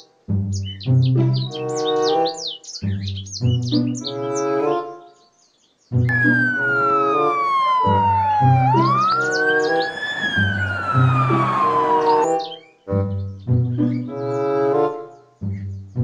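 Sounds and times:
police siren wailing: 6.1 - 12.6.

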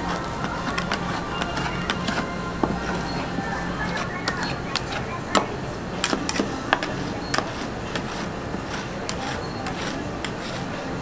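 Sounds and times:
steady low hum: 0.0 - 11.0
metal spatulas scraping steel plate: 6.0 - 10.8.

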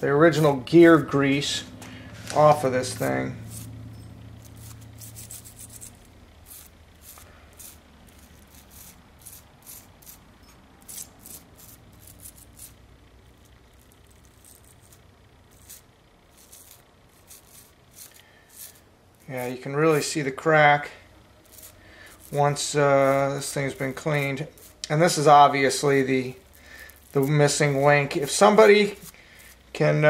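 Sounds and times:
toothbrush scrubbing plastic: 4.4 - 10.2, 10.8 - 12.8, 13.8 - 20.0, 21.4 - 24.9, 25.8 - 29.7.

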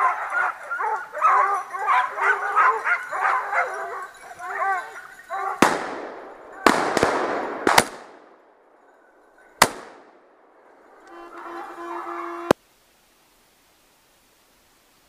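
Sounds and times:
echoing gunshots: 5.6 - 8.7, 9.6 - 10.7
steady droning tone: 11.0 - 12.6.

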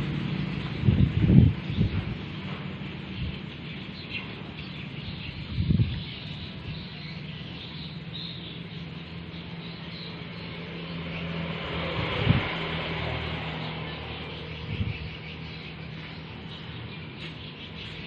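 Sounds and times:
distant motor hum: 0.0 - 18.0.

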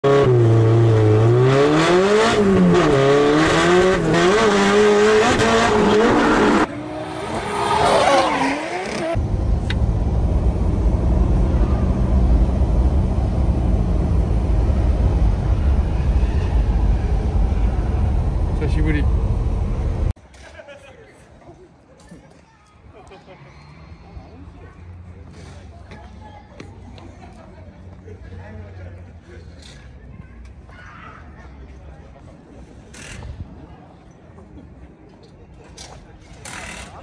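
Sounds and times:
car engine revving hard: 0.0 - 9.2
steady low rumble: 9.2 - 20.2.

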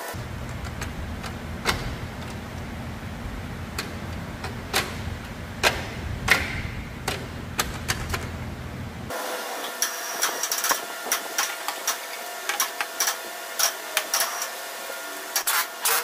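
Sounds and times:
steady low hum: 0.0 - 9.2
sharp knocks and clicks: 0.4 - 2.7, 3.7 - 8.4.

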